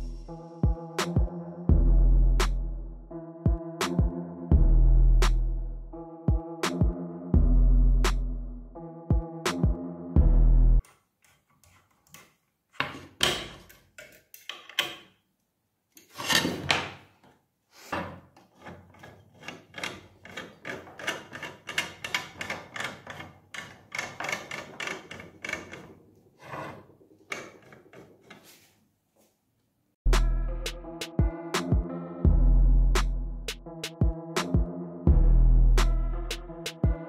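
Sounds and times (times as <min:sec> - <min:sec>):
screwdriver scraping and clicking: 0:10.8 - 0:15.1, 0:18.4 - 0:28.6
screwdriver rubbing strokes: 0:18.4 - 0:28.8.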